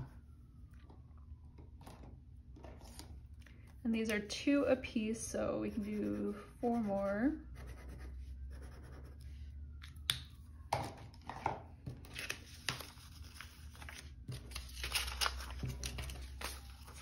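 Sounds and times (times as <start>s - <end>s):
pen scratching on paper: 5.6s - 9.2s
paper rustling: 12.0s - 17.0s.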